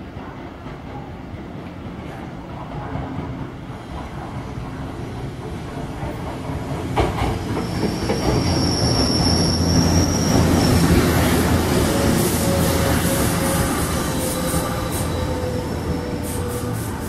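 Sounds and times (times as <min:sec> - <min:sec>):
wheels squealing: 0:07.5 - 0:17.0.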